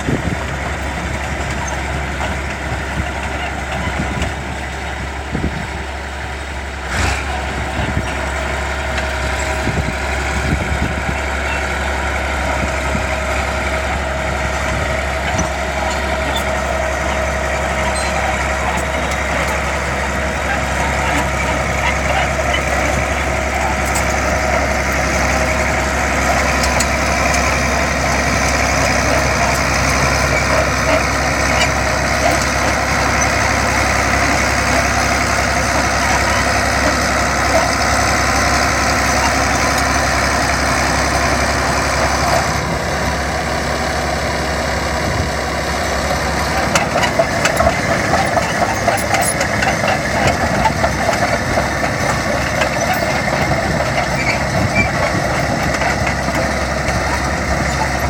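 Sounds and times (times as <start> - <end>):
bulldozer diesel engine running: 0.0 - 58.0
rapid uneven clatter: 15.2 - 40.4, 46.1 - 58.0.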